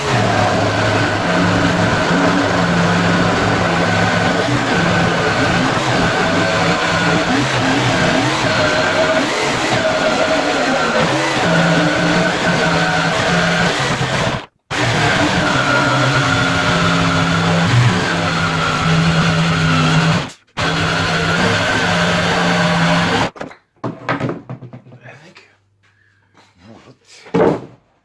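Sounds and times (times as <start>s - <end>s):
jigsaw cutting plywood: 0.0s - 23.4s
wood knocking: 23.4s - 25.0s, 27.3s - 27.8s.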